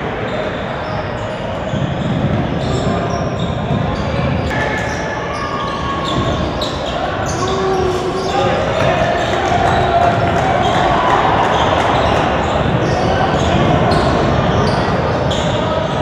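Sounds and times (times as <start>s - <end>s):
voices: 0.0s - 16.0s
basketballs bouncing on wooden court: 1.7s - 4.6s.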